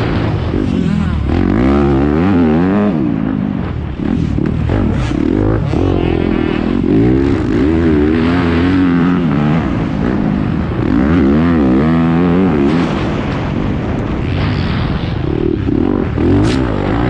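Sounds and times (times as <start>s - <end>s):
dirt bike engine revving: 0.0s - 17.0s
rushing noise: 0.0s - 17.0s.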